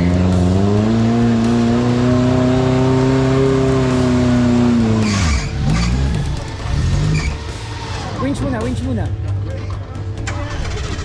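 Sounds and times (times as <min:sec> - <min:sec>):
engine revving in mud: 0:00.0 - 0:09.0.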